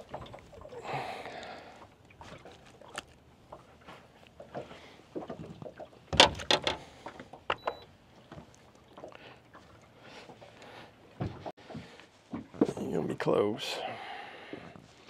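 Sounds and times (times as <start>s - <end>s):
knocks and thumps on boat deck: 5.2s - 8.5s, 11.2s - 12.8s.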